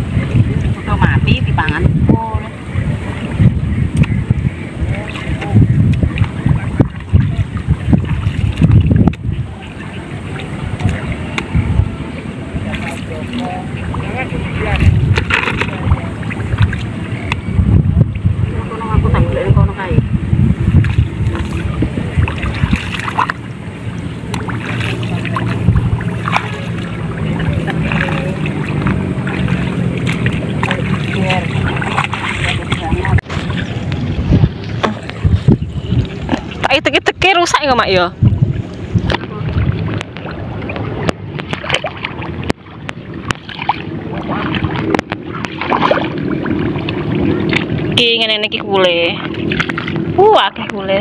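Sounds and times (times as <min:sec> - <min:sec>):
low rumble: 0:00.0 - 0:51.0
footsteps squelching through mud: 0:24.2 - 0:36.6.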